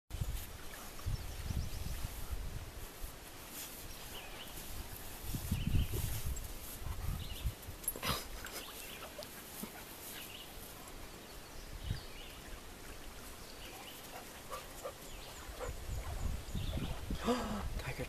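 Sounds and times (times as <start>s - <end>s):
dog panting softly: 9.2s - 10.4s, 14.1s - 16.2s.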